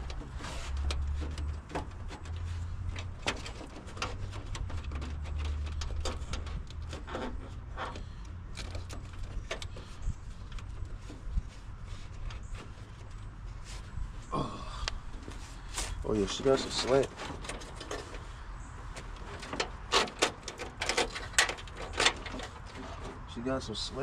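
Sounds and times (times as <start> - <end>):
hands handling plastic and metal parts: 0.0 - 13.9.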